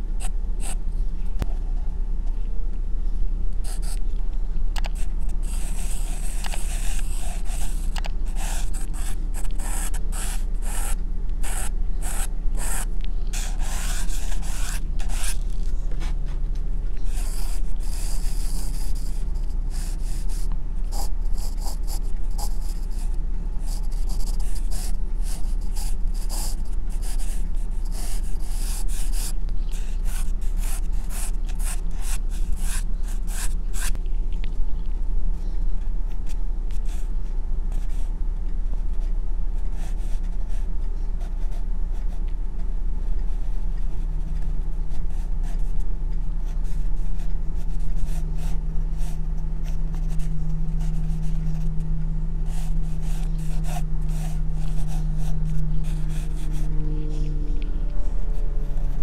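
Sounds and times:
steady low hum: 0:00.0 - 0:59.0
pencil scratching on paper: 0:03.6 - 0:04.0, 0:04.9 - 0:15.5, 0:17.0 - 0:34.0, 0:46.4 - 0:51.8, 0:52.4 - 0:58.6.

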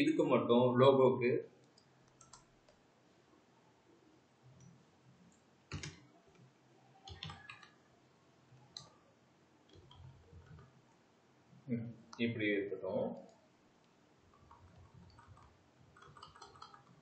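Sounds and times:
keyboard keystrokes: 0:02.1 - 0:02.5, 0:05.7 - 0:06.0, 0:07.1 - 0:07.7, 0:14.3 - 0:17.0.

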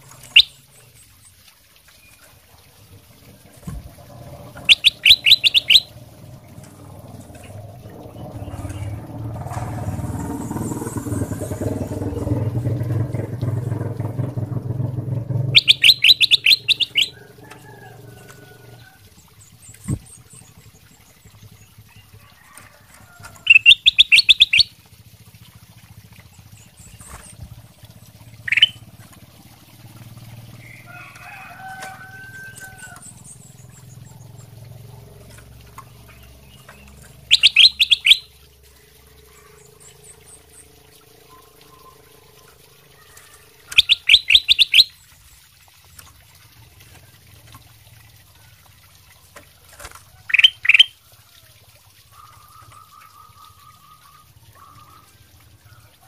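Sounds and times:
bird chirp: 0:00.0 - 0:01.3, 0:04.3 - 0:09.7, 0:15.2 - 0:17.4, 0:23.4 - 0:24.7, 0:28.4 - 0:28.9, 0:32.8 - 0:45.2, 0:50.3 - 0:50.9
low rumble: 0:03.2 - 0:18.8
bird chattering: 0:04.4 - 0:06.0, 0:15.4 - 0:17.4, 0:23.4 - 0:24.7, 0:28.4 - 0:28.9, 0:36.1 - 0:38.4, 0:43.7 - 0:45.0, 0:50.3 - 0:50.9.

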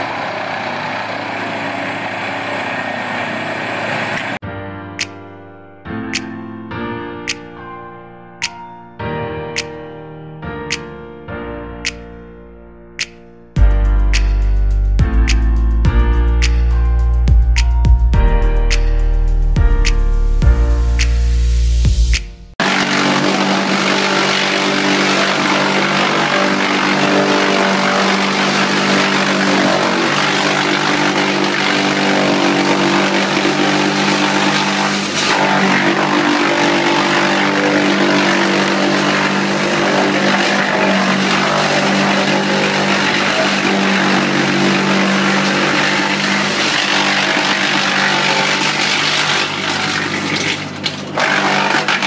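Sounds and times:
wood chipper running: 0:00.0 - 0:04.4, 0:22.6 - 0:52.0.

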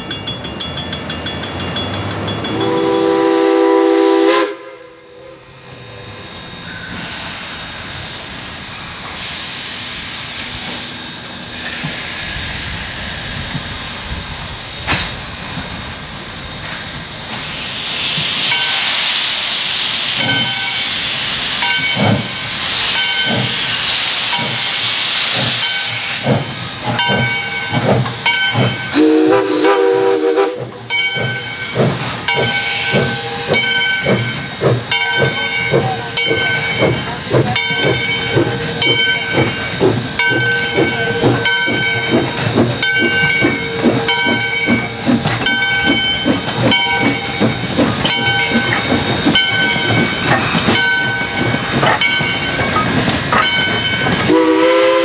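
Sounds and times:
locomotive bell ringing: 0:00.0 - 0:03.8, 0:21.6 - 0:22.3, 0:22.9 - 0:24.8, 0:26.8 - 0:29.8, 0:30.8 - 0:54.7
train whistle blast: 0:02.6 - 0:06.1, 0:28.9 - 0:30.7, 0:54.3 - 0:55.0
steam hissing: 0:02.6 - 0:55.0.

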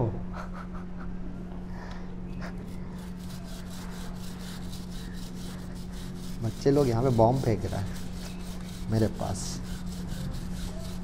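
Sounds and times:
steady low hum: 0:00.0 - 0:11.0
brush scrubbing a chain: 0:03.0 - 0:11.0.

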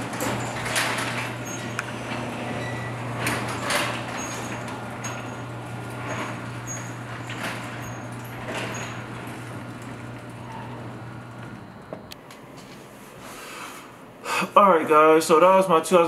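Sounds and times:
garage door panels rattling: 0:00.0 - 0:11.9.

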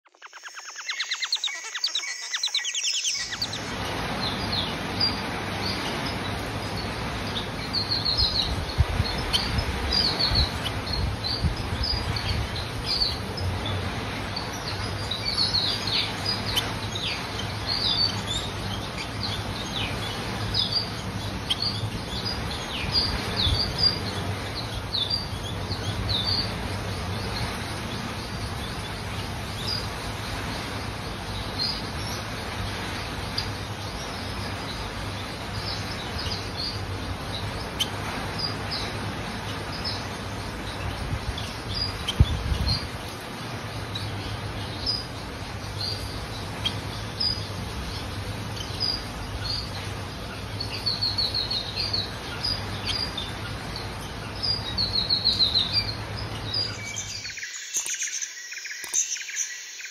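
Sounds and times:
finches chirping: 0:00.0 - 0:59.9
background hiss and hum: 0:00.1 - 0:59.9.

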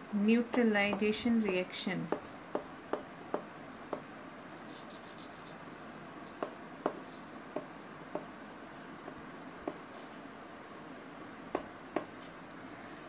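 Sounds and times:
chalk tapping on chalkboard: 0:00.5 - 0:05.6, 0:06.2 - 0:08.4, 0:09.1 - 0:10.1
chalk scratching: 0:04.5 - 0:07.3.

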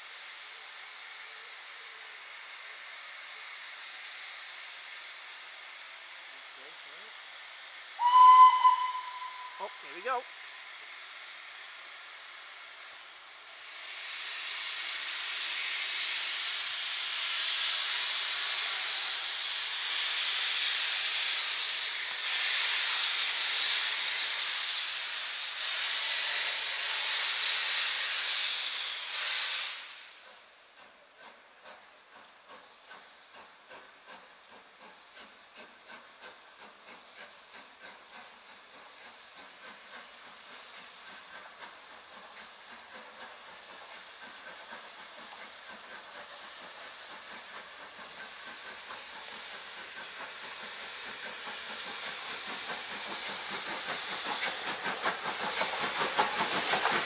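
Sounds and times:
steam hissing from locomotive: 0:00.0 - 0:57.0.

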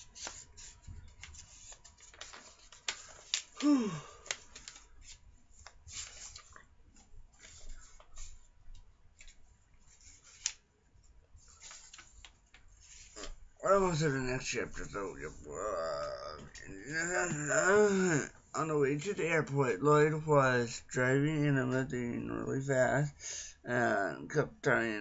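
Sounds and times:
pages rustling and turning: 0:00.0 - 0:15.4.

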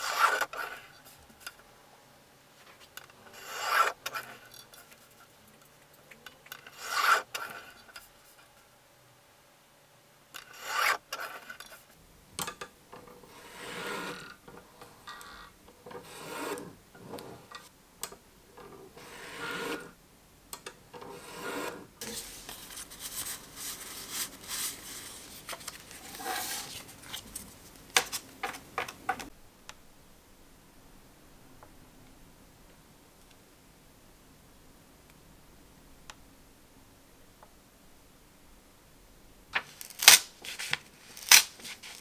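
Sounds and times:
paper being handled: 0:22.0 - 0:28.3, 0:39.6 - 0:42.0.

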